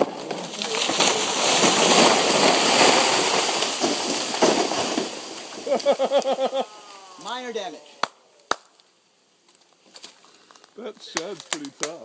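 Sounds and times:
tree crashing down: 0.0 - 7.7.

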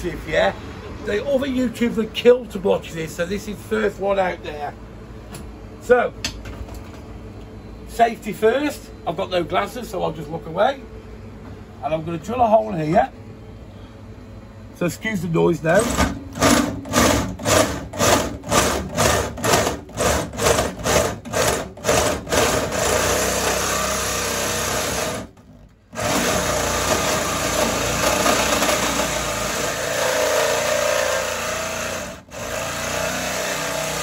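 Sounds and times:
electric drill boring: 15.8 - 34.0.

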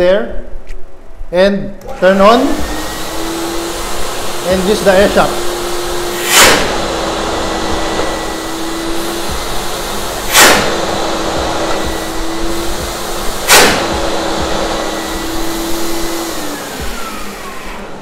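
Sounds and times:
industrial vacuum blowers running: 1.7 - 18.0
sharp air blasts: 2.2 - 18.0.

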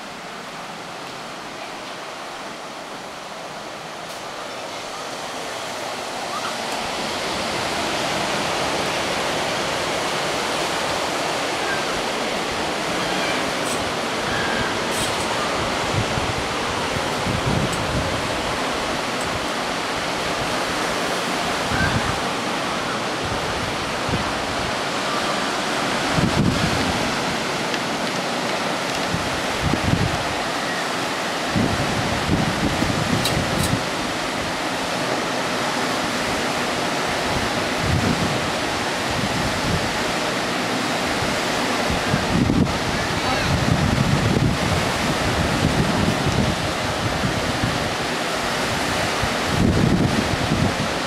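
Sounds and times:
ocean surf breaking on sand: 0.0 - 51.0
wind rumble on microphone: 6.9 - 22.4, 23.0 - 25.1, 25.8 - 30.5, 31.2 - 34.6, 36.2 - 40.2, 41.0 - 51.0.

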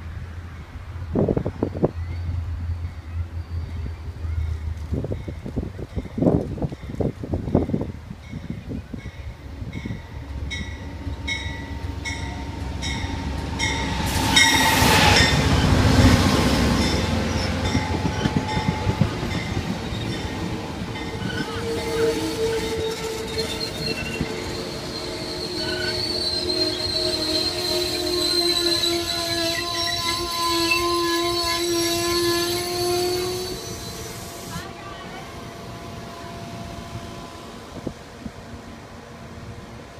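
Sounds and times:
diesel locomotive passing: 0.0 - 39.9
train wheel squeal: 1.6 - 4.4, 16.8 - 20.3, 21.0 - 34.6.

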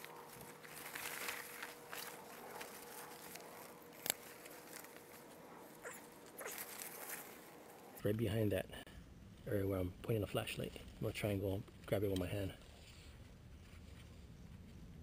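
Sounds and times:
leaves and stems rustling: 0.0 - 8.0.

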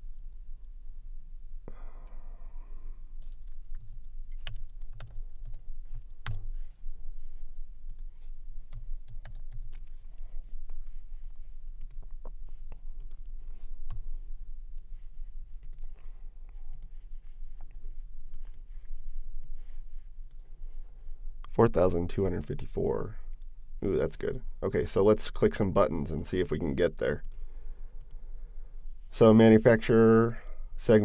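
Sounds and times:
steady low hum: 0.0 - 31.0
typing on a computer keyboard: 3.2 - 5.6, 6.2 - 6.5, 8.7 - 10.6.

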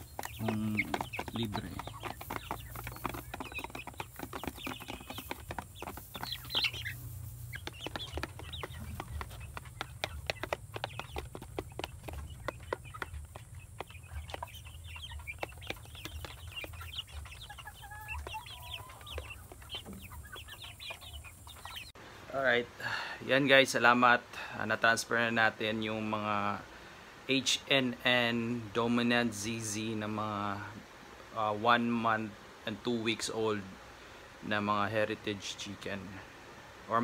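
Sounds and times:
chickens pecking beak clicks: 0.0 - 21.9
chickens clucking and chirping: 0.0 - 22.6, 23.3 - 37.0.

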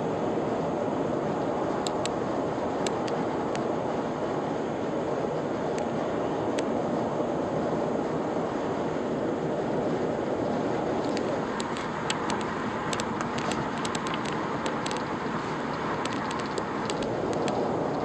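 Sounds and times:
road and wind noise in car: 0.0 - 18.0
light ticks: 1.8 - 2.2, 11.0 - 18.0.

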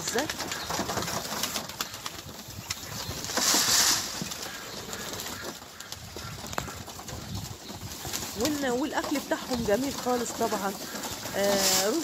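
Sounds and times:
pigeons cooing: 0.0 - 12.0
wings flapping: 0.0 - 12.0.

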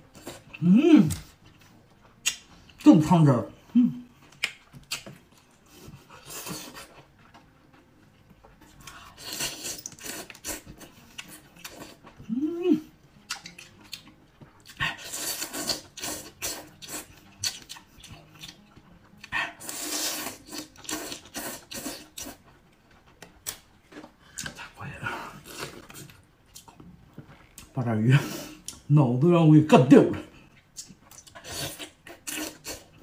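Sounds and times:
lip smacking clicks: 2.2 - 2.5, 4.3 - 5.2, 13.2 - 14.1
chewing: 4.1 - 27.8, 30.4 - 33.0
wet slurping: 19.6 - 22.4.

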